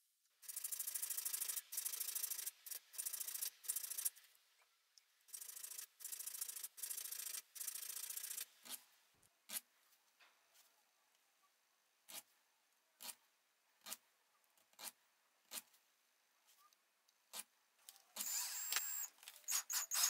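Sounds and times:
file rasping on metal: 19.5s - 20.0s.

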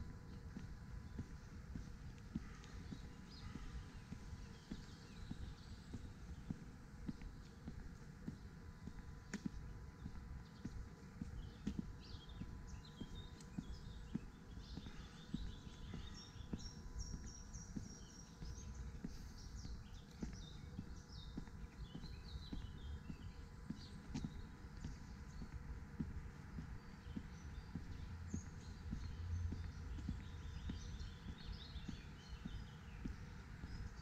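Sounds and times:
footsteps on a path: 0.0s - 34.0s
small birds chirping: 0.0s - 34.0s.

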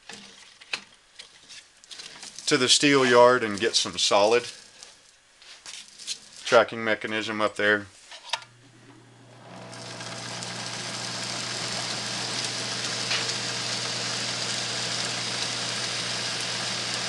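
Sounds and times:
motor hum: 8.4s - 17.0s.

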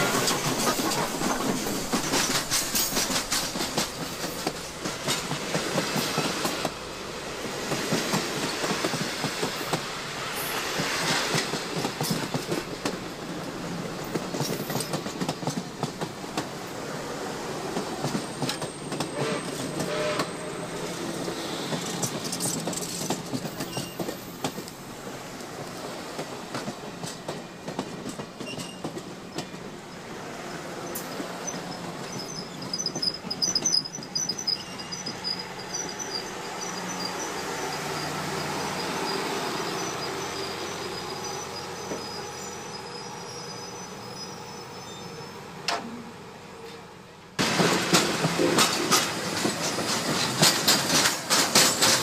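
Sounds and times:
train wheels clicking over rail joints: 0.0s - 36.1s, 47.4s - 52.0s
train wheels squealing: 8.1s - 9.6s, 14.0s - 15.6s, 18.0s - 24.7s, 26.5s - 45.6s.

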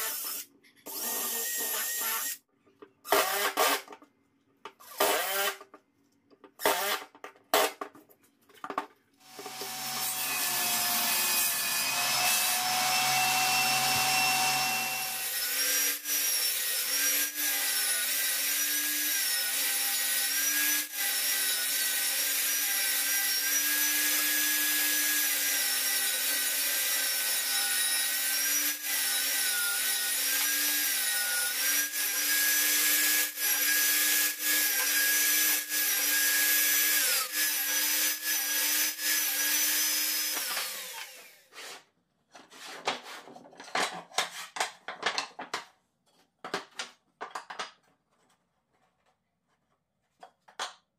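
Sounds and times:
table saw ripping boards: 6.5s - 8.0s, 9.2s - 45.6s
saw winding down: 9.3s - 15.3s.

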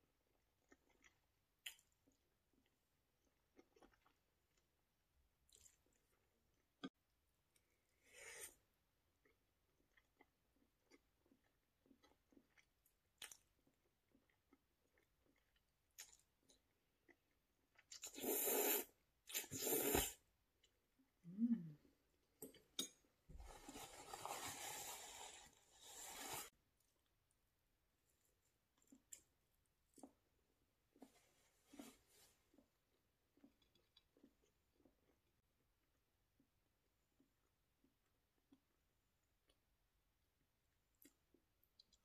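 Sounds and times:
person chewing: 0.6s - 2.8s, 3.5s - 4.6s, 5.5s - 6.9s, 9.2s - 20.8s
loud slurps: 18.0s - 20.2s.

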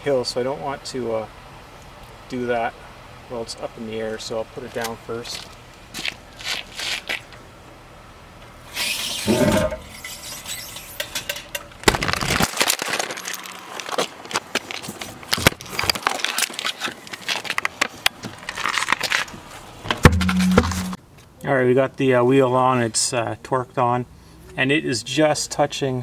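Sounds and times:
scraping and rubbing: 8.8s - 11.0s
metallic clicks and knocks: 19.9s - 21.0s.

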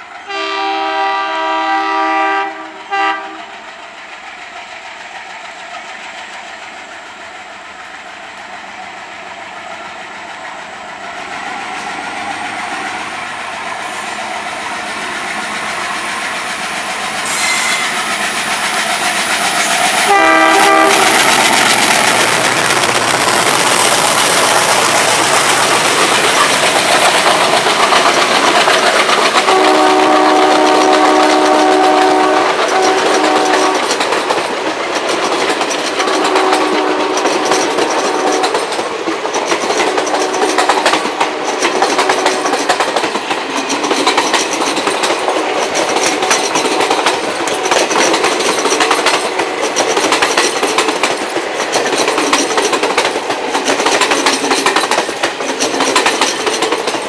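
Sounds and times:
train wheels clattering: 0.0s - 57.0s
train horn blasts: 0.2s - 3.5s, 17.2s - 17.9s, 20.0s - 21.3s, 29.5s - 33.9s, 36.0s - 38.6s.

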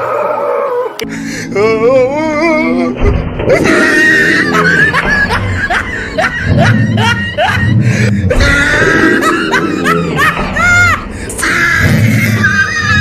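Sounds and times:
laughter track chuckling: 4.2s - 7.8s, 8.7s - 11.0s.

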